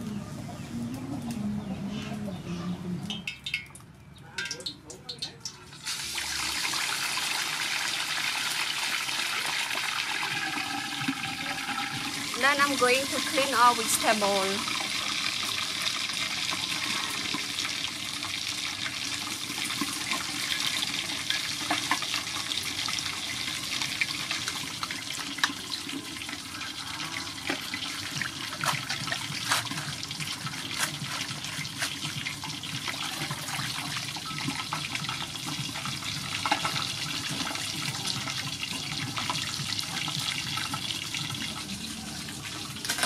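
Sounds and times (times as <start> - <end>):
water dripping: 3.0 - 5.7
water splashing in metal bowl: 3.1 - 16.7.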